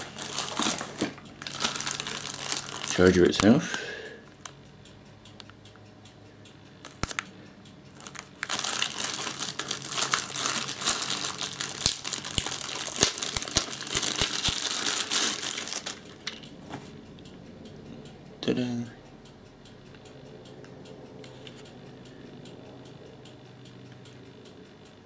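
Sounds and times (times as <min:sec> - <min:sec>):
plastic bag crinkling: 0:00.0 - 0:03.7, 0:08.0 - 0:16.5.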